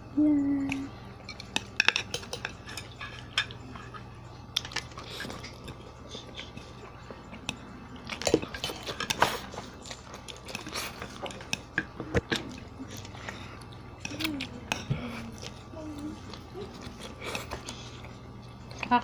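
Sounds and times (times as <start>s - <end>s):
eating noises: 0.4s - 19.0s
chopsticks clicking against plates: 0.7s - 6.6s, 7.3s - 15.6s.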